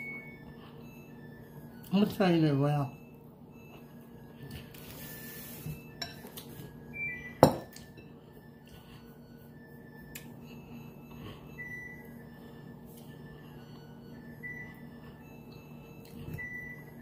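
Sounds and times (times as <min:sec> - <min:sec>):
ceramic bowl knocking on table: 0:07.4 - 0:07.7.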